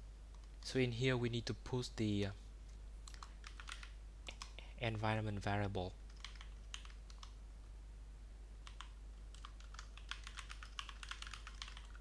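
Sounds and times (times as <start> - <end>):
computer keyboard typing: 3.0 - 4.5, 6.1 - 7.4, 8.6 - 12.0.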